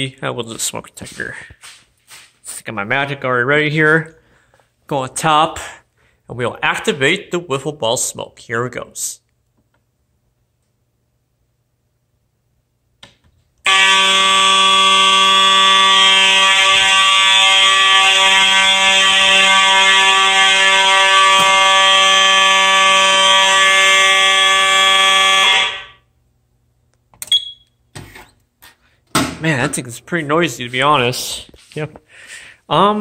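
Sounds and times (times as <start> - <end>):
fire alarm horn tone: 13.6 - 26.1.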